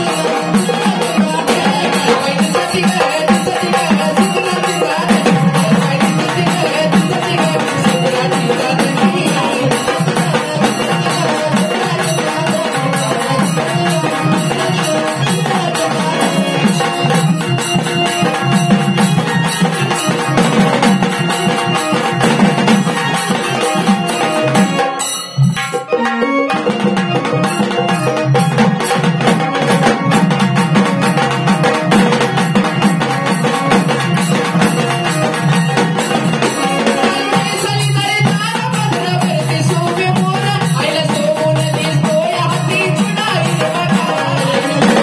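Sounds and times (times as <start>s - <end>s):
steady dense percussion: 0.0s - 45.0s
sustained instrumental melody: 12.3s - 37.8s.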